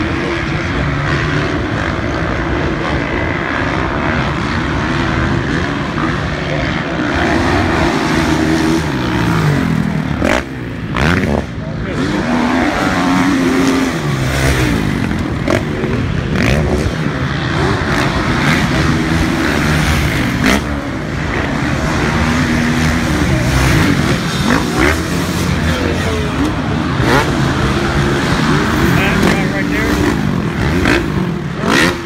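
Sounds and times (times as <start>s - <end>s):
motocross bike engines revving: 0.0s - 32.0s.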